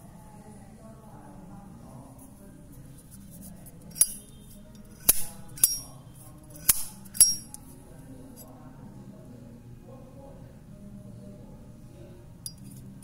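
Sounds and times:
lighter lid metallic clinks: 0:05.0 - 0:05.9, 0:06.6 - 0:07.6.

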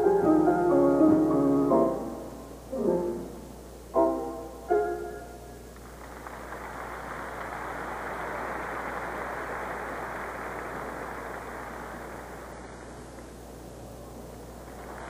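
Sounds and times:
crowd applauding: 0:05.8 - 0:13.2, 0:14.6 - 0:15.0.

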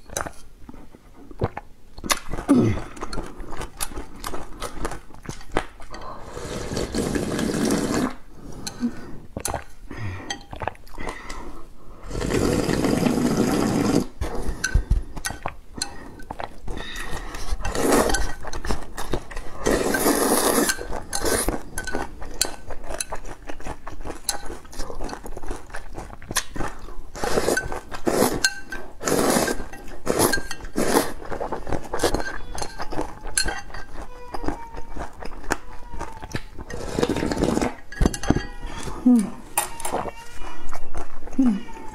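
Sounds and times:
wet eating sounds: 0:00.0 - 0:41.9
slurping broth from a bowl: 0:05.9 - 0:10.8, 0:12.0 - 0:15.2, 0:15.8 - 0:23.6, 0:26.4 - 0:32.8, 0:36.6 - 0:39.0
chopsticks clinking on bowl: 0:29.6 - 0:30.9, 0:31.9 - 0:34.5, 0:36.3 - 0:38.6.

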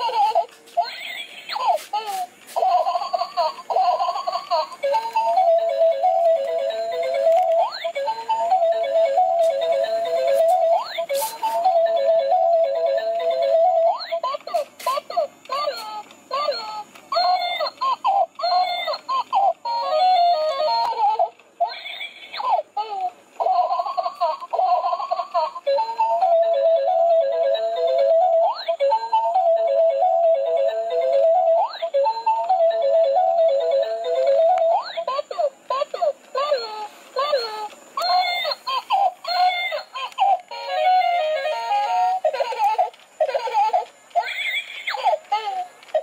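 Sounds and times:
recorded baby giggling and babbling: 0:00.0 - 0:11.8, 0:41.7 - 0:46.0
toy baby voice clips: 0:00.0 - 0:46.0.

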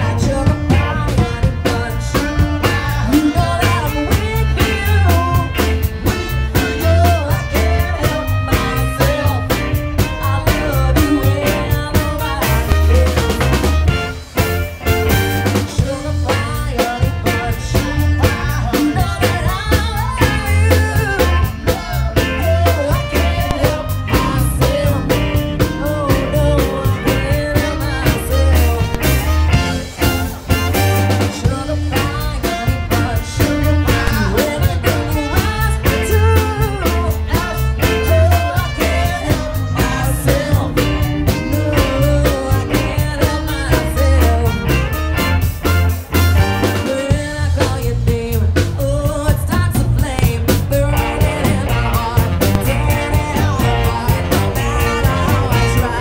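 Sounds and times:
woman singing: 0:00.0 - 0:13.8, 0:15.4 - 0:45.2, 0:46.6 - 0:56.0
saxophone: 0:00.0 - 0:47.6, 0:50.0 - 0:56.0
live soul band playing: 0:00.0 - 0:56.0.

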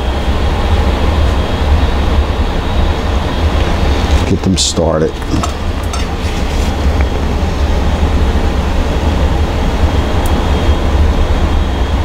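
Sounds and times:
low rumbling drone: 0:00.0 - 0:12.0.

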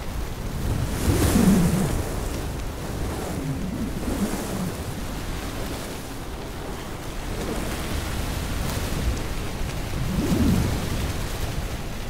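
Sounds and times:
sandstorm wind blowing: 0:00.0 - 0:12.0.

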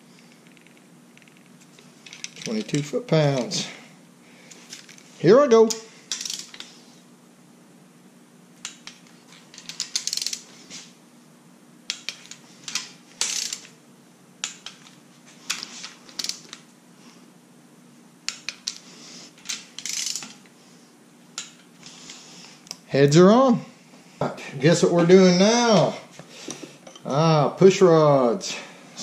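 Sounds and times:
torque wrench ratcheting clicks: 0:05.7 - 0:06.7, 0:09.6 - 0:10.4, 0:11.9 - 0:13.7, 0:16.2 - 0:16.6, 0:19.5 - 0:20.4.

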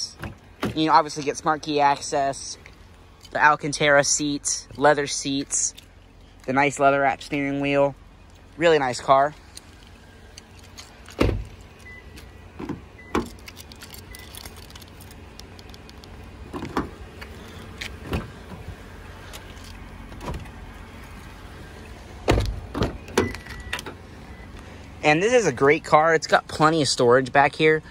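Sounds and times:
car door clicks and thumps: 0:00.2 - 0:01.0, 0:11.1 - 0:13.5, 0:16.5 - 0:17.0, 0:17.8 - 0:18.7, 0:20.1 - 0:20.6, 0:22.2 - 0:24.0.

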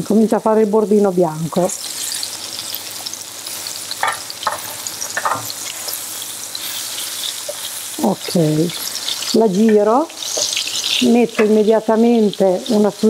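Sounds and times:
cutlets sizzling in oil: 0:00.0 - 0:13.0
fork clicking against pan: 0:11.4 - 0:11.6.

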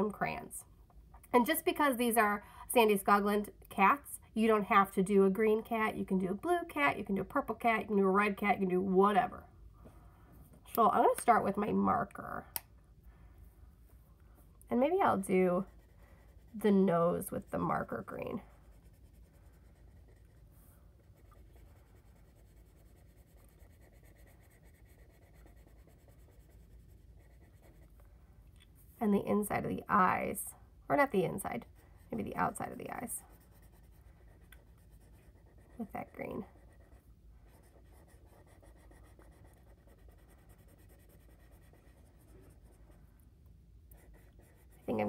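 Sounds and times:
marker scratching on paper: 0:14.8 - 0:28.0, 0:30.9 - 0:43.0, 0:43.9 - 0:45.0.

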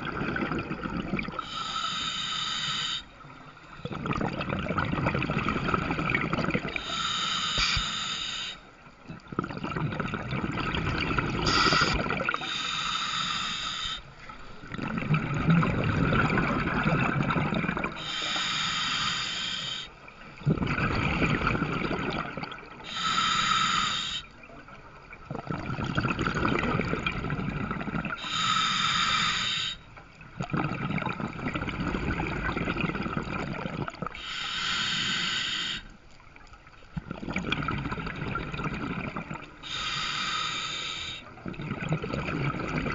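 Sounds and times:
exhaled bubbles rumbling: 0:00.0 - 0:01.5, 0:03.7 - 0:07.1, 0:09.0 - 0:12.6, 0:14.3 - 0:18.5, 0:20.2 - 0:22.9, 0:24.4 - 0:28.3, 0:30.1 - 0:34.2, 0:36.4 - 0:39.7, 0:41.3 - 0:42.9
hissing inhale through regulator: 0:01.3 - 0:03.3, 0:06.6 - 0:08.8, 0:11.2 - 0:14.7, 0:17.4 - 0:20.0, 0:22.6 - 0:24.4, 0:28.0 - 0:30.0, 0:34.1 - 0:36.0, 0:39.6 - 0:41.4.

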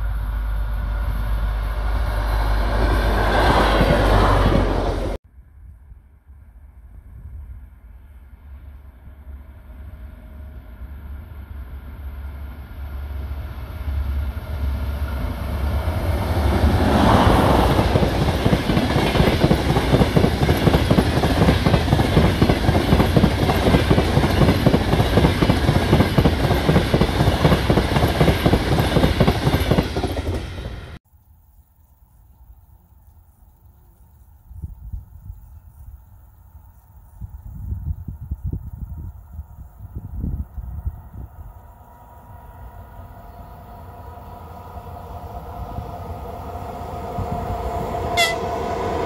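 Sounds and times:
passenger train passing: 0:00.0 - 0:05.2, 0:07.4 - 0:31.0, 0:40.1 - 0:49.0.

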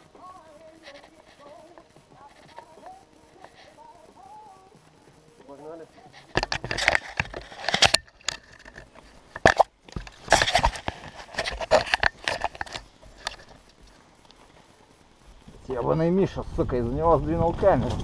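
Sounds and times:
clothing and handling noise: 0:05.4 - 0:15.5
scraping and clattering: 0:06.1 - 0:13.9.

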